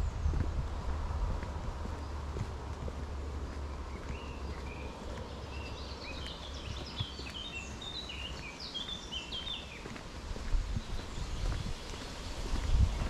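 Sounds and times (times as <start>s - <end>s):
steady low rumble: 0.0s - 7.2s
songbird twittering: 3.5s - 10.0s.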